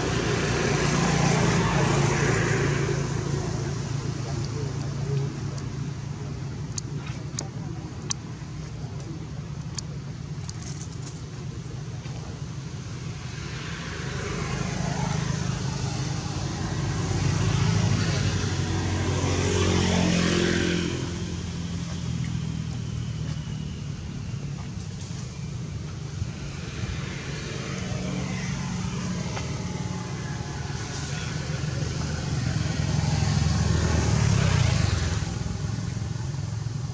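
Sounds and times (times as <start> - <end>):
steady low rumble: 0.0 - 36.9
vehicle driving past: 26.3 - 36.7.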